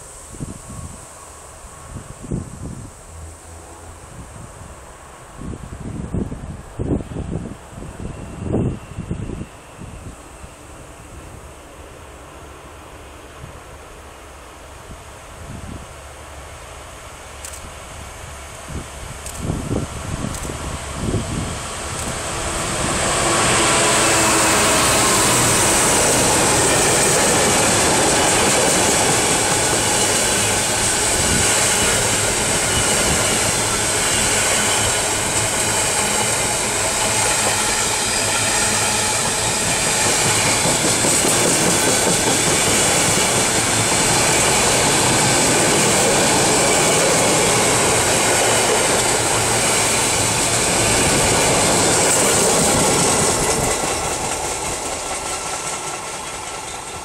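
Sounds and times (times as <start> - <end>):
diesel locomotive passing: 0.0 - 57.0
train wheels on rail clacking: 19.2 - 57.0.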